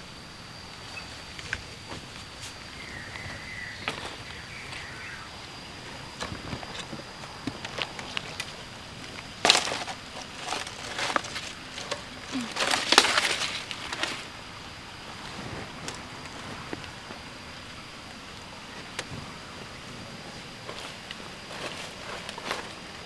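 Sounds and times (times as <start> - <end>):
plastic basket clattering on wooden slats: 9.4 - 14.3.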